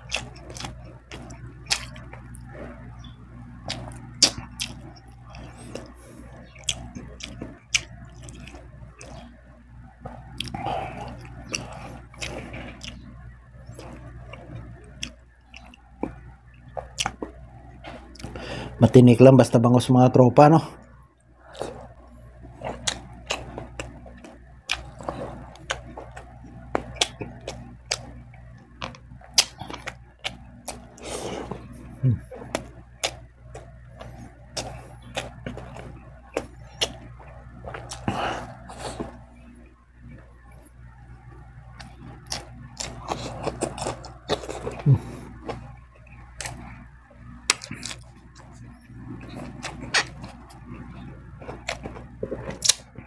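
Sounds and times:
close chewing with mouth clicks: 0:00.0 - 0:09.4, 0:10.0 - 0:18.9, 0:21.4 - 0:53.0
low steady hum: 0:00.0 - 0:53.0
low throat sound: 0:30.9 - 0:32.7, 0:43.1 - 0:45.6.

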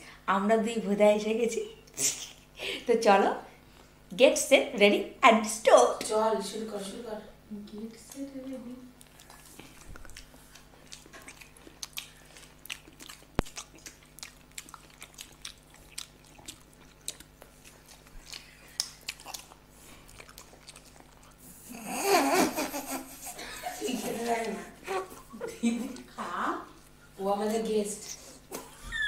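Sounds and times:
wet chewing and mouth smacks: 0:09.0 - 0:21.6.

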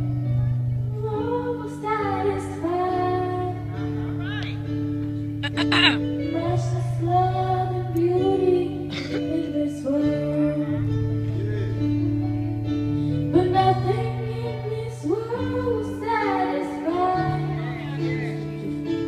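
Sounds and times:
instrumental backing with bass notes: 0:00.0 - 0:19.0
girl singing into microphone: 0:00.9 - 0:03.8, 0:05.6 - 0:11.4, 0:13.2 - 0:18.1.

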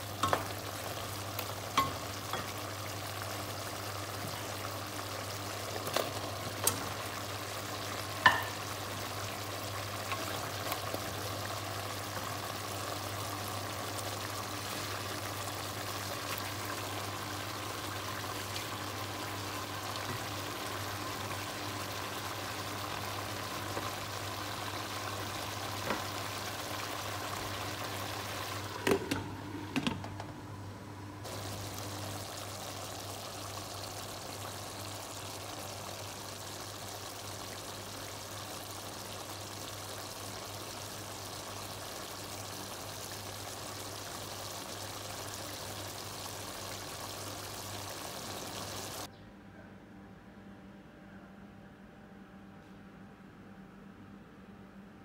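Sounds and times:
pot simmering with sizzling hiss: 0:00.0 - 0:49.1
knocks against pot: 0:08.2 - 0:08.6.

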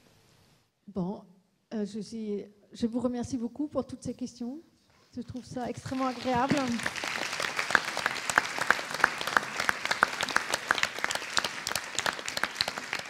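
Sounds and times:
audience applauding: 0:05.5 - 0:13.0.

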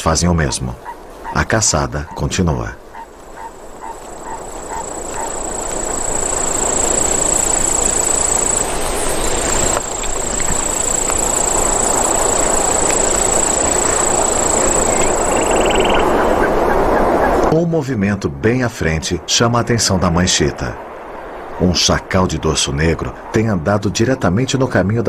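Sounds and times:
even rushing noise: 0:02.7 - 0:24.8
thin high whine: 0:03.4 - 0:16.6.

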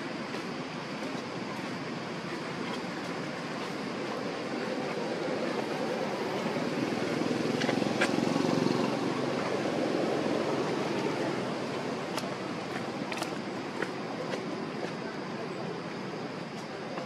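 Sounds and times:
low rushing background noise: 0:00.0 - 0:17.0.

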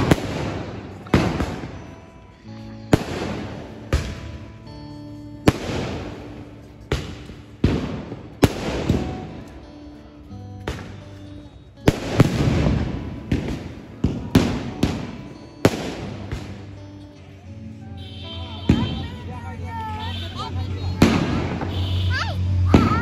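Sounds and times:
fireworks bursting: 0:00.0 - 0:02.0, 0:02.9 - 0:04.4, 0:05.4 - 0:09.6, 0:10.6 - 0:16.7, 0:18.4 - 0:19.2, 0:20.0 - 0:23.0.

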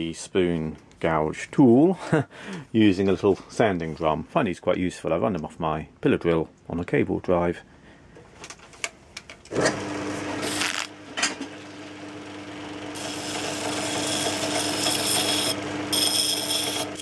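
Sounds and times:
pillar drill humming: 0:09.7 - 0:17.0
sanding drum rasping on steel: 0:13.0 - 0:17.0.

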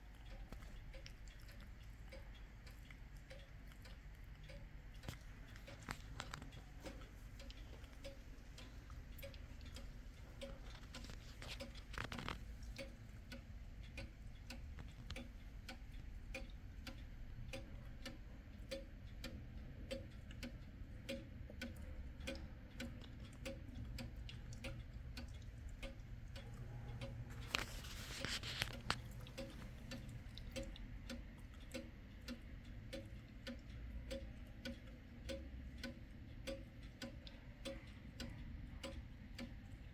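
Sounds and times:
wall clock ticking: 0:00.0 - 0:39.9.

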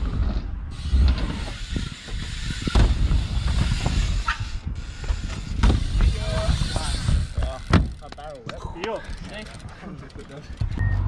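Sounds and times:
bike tyres rumbling on ramps: 0:00.0 - 0:11.0.

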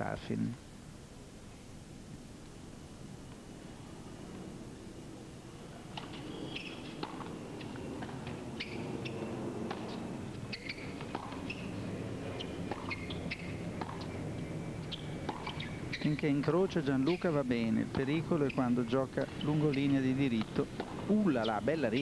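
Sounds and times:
shoes squeaking on court: 0:05.9 - 0:22.0
tennis ball pops: 0:10.6 - 0:11.6, 0:12.7 - 0:14.1, 0:15.2 - 0:16.0.

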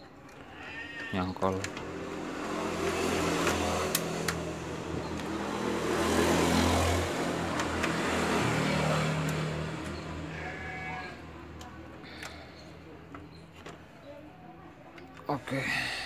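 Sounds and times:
vehicle engine passing: 0:01.4 - 0:12.9.

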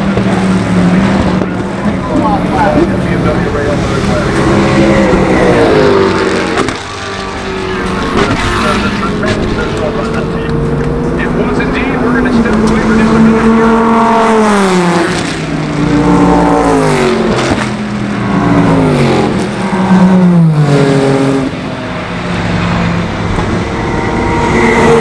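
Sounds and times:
racing cars passing at speed: 0:00.0 - 0:25.0.

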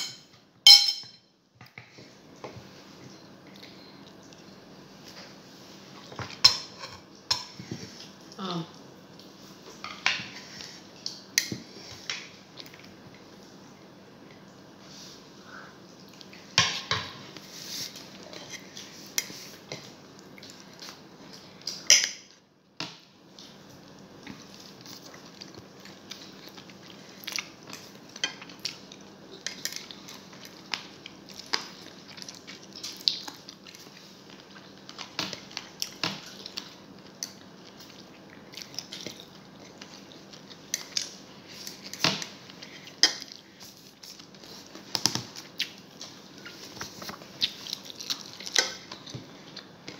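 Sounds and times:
cutlery clinking on ceramic plate: 0:00.0 - 0:01.2.

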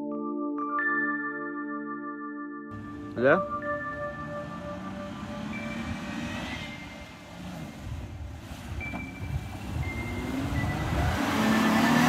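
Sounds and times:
suv engine driving through sand: 0:03.8 - 0:12.0.

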